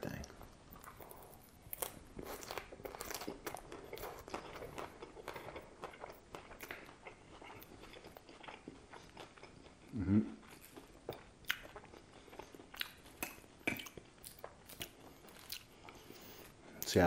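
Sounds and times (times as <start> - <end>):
person chewing crisp salad: 0.3 - 16.6.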